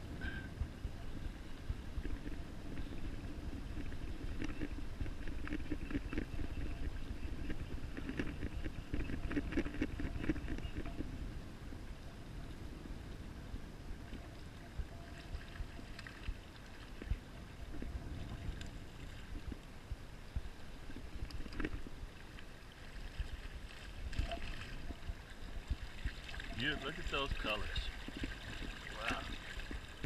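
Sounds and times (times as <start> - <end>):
wind buffeting microphone: 0.0 - 22.2
shallow river current: 0.0 - 30.0.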